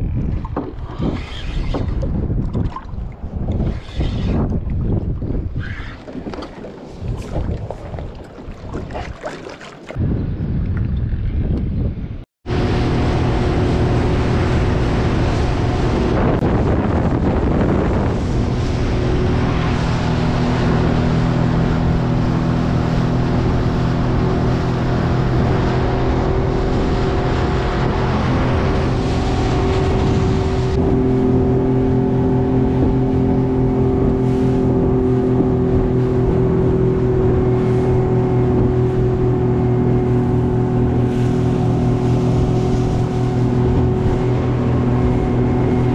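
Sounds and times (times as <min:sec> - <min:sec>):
water rushing along hull: 0:00.0 - 0:10.0, 0:12.4 - 0:45.9
wind: 0:00.0 - 0:45.9
motorboat engine running: 0:12.4 - 0:45.9.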